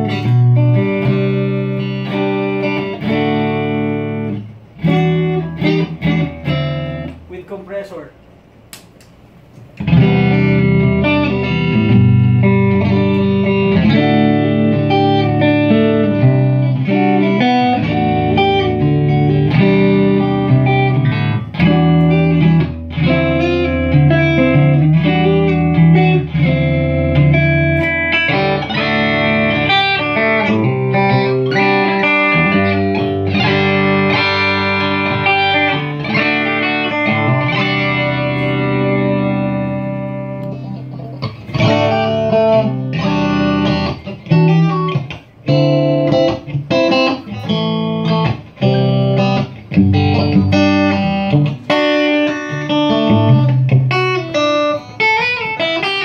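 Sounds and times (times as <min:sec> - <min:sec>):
electric guitar through amplifier: 0:00.0 - 0:56.0
clicks: 0:08.7 - 0:09.9.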